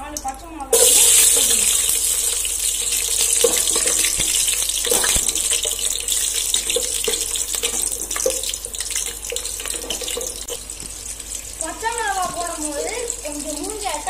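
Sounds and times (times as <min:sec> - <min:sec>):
spices sizzling in hot oil: 0:00.2 - 0:14.0
spatula scraping and tapping pot: 0:02.7 - 0:11.0.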